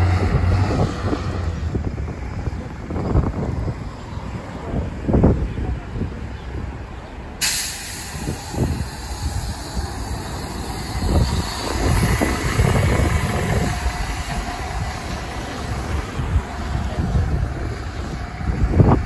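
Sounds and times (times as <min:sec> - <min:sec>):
bus engine rumble: 0:00.0 - 0:19.0
wind noise on microphone: 0:00.0 - 0:19.0.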